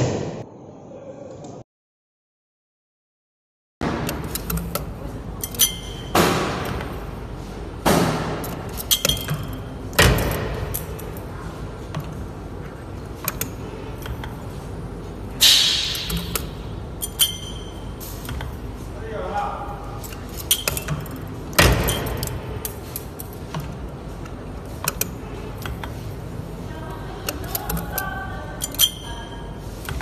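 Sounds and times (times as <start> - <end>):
light machine clicks: 4.0 - 7.0, 13.2 - 14.5, 20.0 - 26.0, 27.2 - 30.0
sharp metallic knocks: 15.4 - 16.5.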